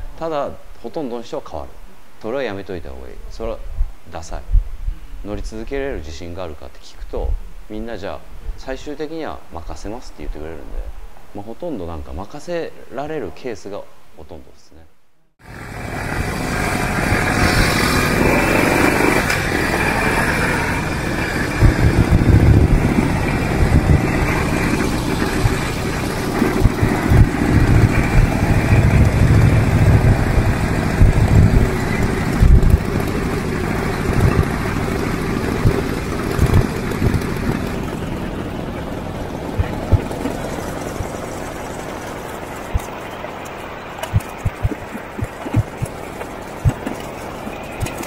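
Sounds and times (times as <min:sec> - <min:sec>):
motorcycle engine running: 0:15.4 - 0:48.0.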